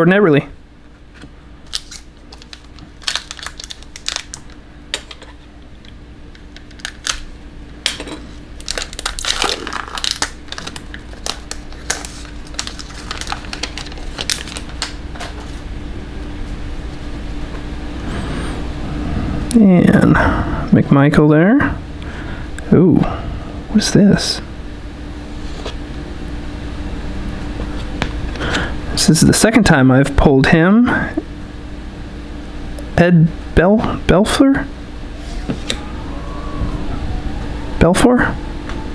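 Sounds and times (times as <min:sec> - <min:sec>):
plastic wrapper tearing and crinkling: 0:01.7 - 0:05.2, 0:06.4 - 0:08.0, 0:08.6 - 0:15.4.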